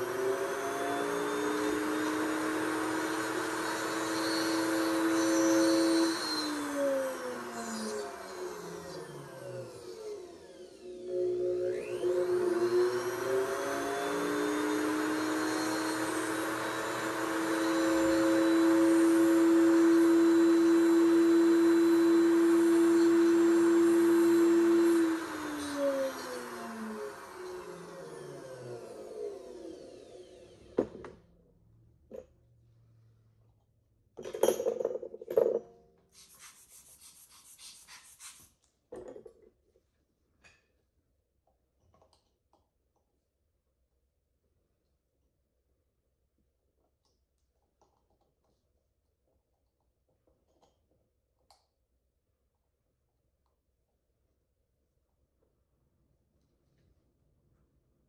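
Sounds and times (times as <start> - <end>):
dental drill whine: 0.0 - 31.0.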